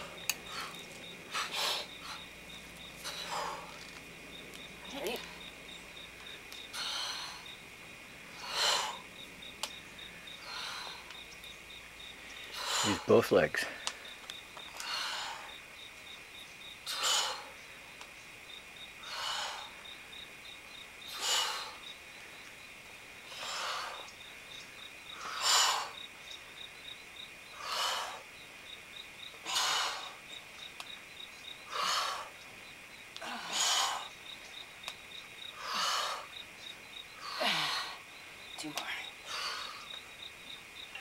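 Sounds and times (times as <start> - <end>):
insects chirping: 0.0 - 41.0.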